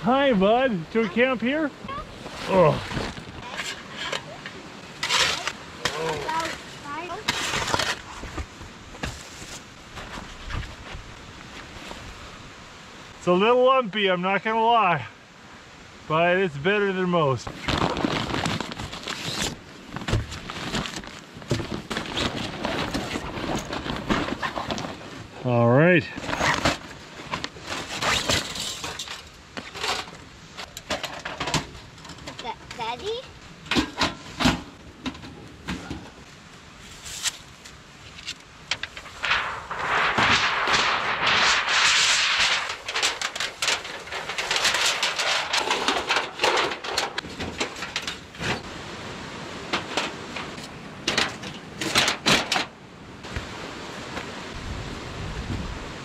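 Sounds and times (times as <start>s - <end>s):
handling rustle: 1.0s - 12.1s, 17.4s - 25.3s, 26.0s - 48.8s
metal panels clinking and knocking: 42.5s - 48.6s, 49.7s - 52.7s.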